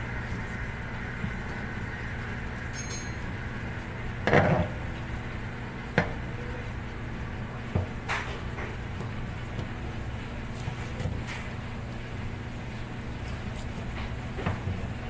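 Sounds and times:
short metallic ring: 2.7 - 3.2.

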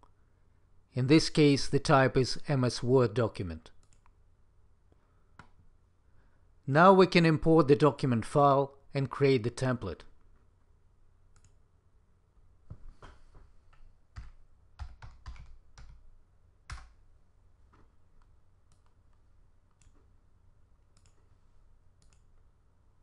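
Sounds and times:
computer mouse and keyboard clicking: 13.0 - 16.0, 20.9 - 21.3.

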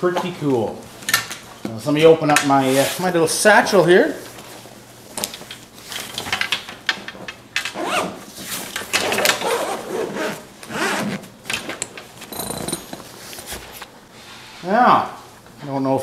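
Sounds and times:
zipper being pulled open: 9.0 - 11.3
fabric rustling: 12.1 - 13.9.

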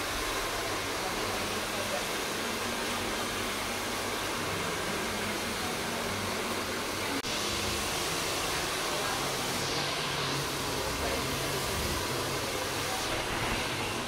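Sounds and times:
rushing air noise: 7.2 - 14.0.

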